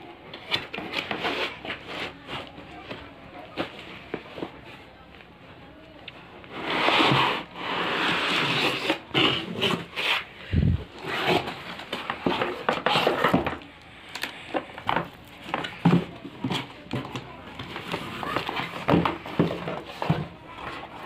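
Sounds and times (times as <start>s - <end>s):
cardboard flaps scraping: 6.5s - 13.7s.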